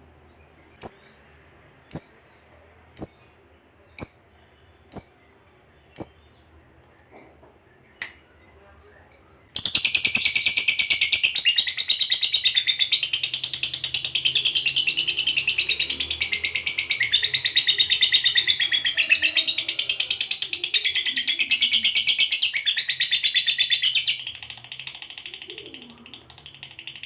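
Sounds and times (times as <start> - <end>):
bird chattering trill: 0.8 - 2.3, 3.0 - 3.3, 4.0 - 4.3, 4.9 - 5.3, 6.0 - 6.3.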